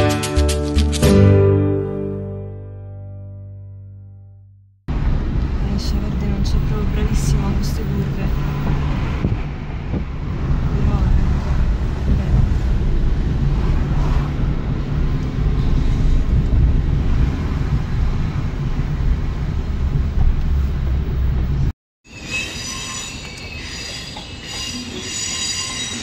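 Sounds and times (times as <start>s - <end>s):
car cabin road and engine rumble: 4.9s - 21.7s
train wheels squealing: 22.1s - 26.0s.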